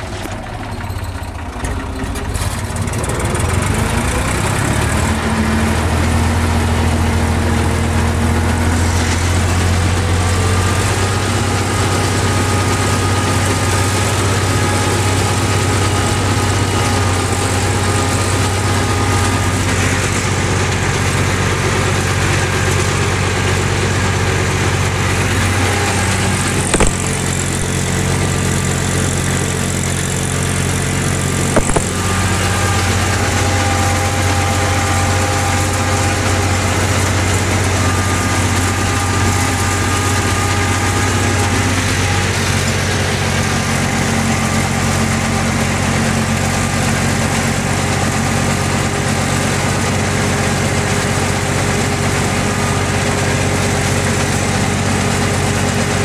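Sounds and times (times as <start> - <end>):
tractor diesel engine running: 0.0 - 56.0
short knock: 26.7 - 27.2, 31.6 - 32.0.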